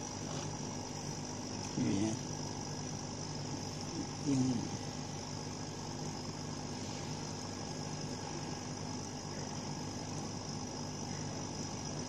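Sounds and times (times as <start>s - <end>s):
machine hum and whir: 0.0s - 12.0s.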